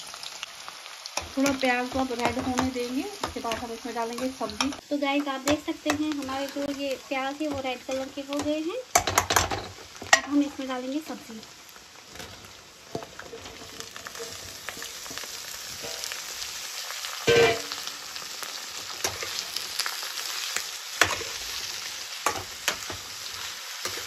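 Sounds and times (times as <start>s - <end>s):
vegetables sizzling in hot oil: 0.0s - 24.0s
metal spoon scraping pan: 17.3s - 17.8s.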